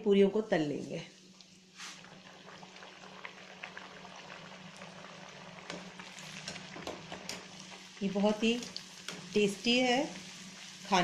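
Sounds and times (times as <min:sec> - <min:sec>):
oil sizzling and crackling: 0:01.1 - 0:11.0.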